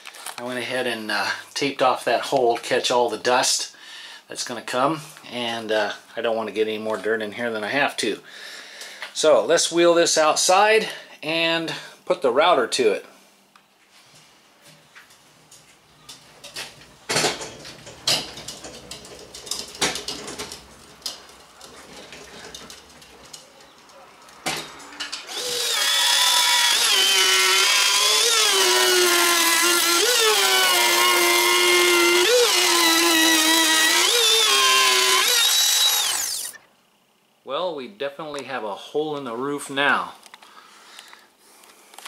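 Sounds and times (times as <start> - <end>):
knocks and clatter: 16.1 - 25.3
router high whine: 25.3 - 36.6.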